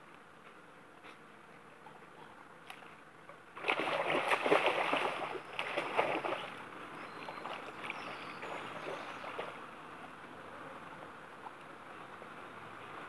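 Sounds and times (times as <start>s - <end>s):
dog splashing through water: 3.6s - 9.6s.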